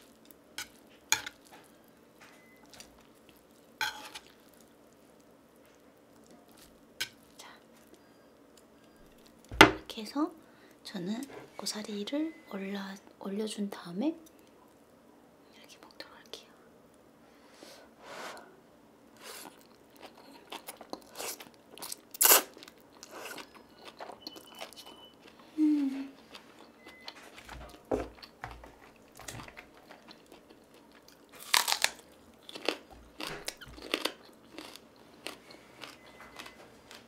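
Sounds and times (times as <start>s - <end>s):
close-miked chewing: 19.4s - 25.5s, 28.1s - 37.0s.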